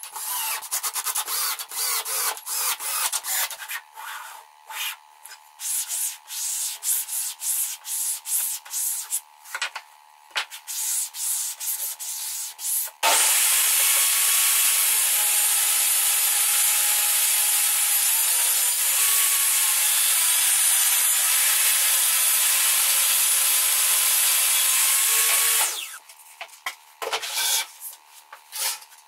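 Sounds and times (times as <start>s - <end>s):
hand sanding wood: 5.6s - 9.3s, 10.5s - 12.9s
table saw cutting: 13.0s - 26.0s.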